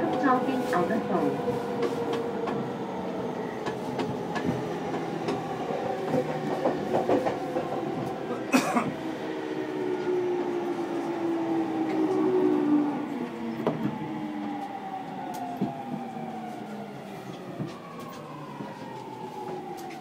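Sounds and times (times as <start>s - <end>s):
passing train rush: 0.0s - 20.0s
train running noise: 3.4s - 9.1s, 9.7s - 20.0s.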